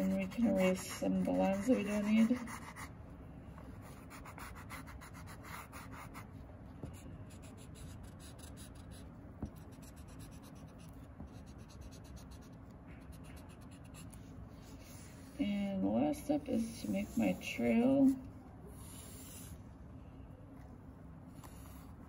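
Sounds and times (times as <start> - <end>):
eraser rubbing on paper: 0.0 - 2.9, 16.8 - 18.2.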